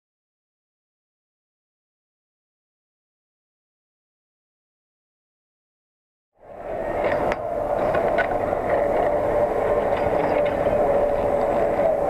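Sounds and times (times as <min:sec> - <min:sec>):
mechanical hum with tone: 0:06.4 - 0:12.0
rushing noise: 0:06.4 - 0:12.0.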